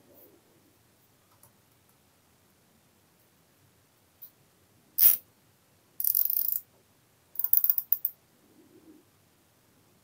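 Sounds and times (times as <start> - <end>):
cable ties ratcheting clicks: 5.0 - 5.2, 6.0 - 6.6, 7.4 - 8.1.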